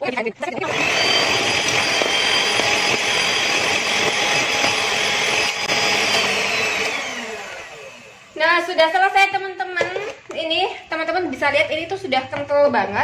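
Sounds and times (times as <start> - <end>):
electric hand mixer whining: 0.5 - 10.2.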